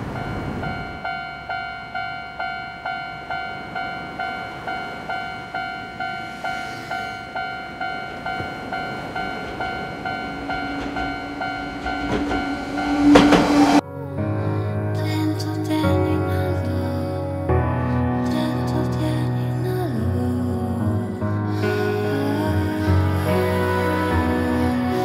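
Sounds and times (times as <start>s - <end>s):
level crossing bell ringing: 0.0s - 13.2s
train rushing past: 0.0s - 13.8s.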